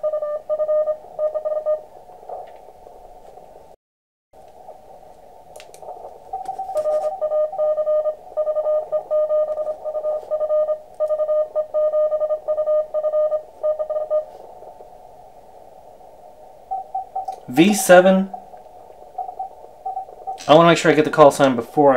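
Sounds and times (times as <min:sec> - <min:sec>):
morse code tone: 0:00.0 - 0:01.9, 0:06.3 - 0:14.4, 0:16.7 - 0:18.5, 0:19.2 - 0:20.6
receiver hiss: 0:00.0 - 0:03.8, 0:04.4 - 0:21.9.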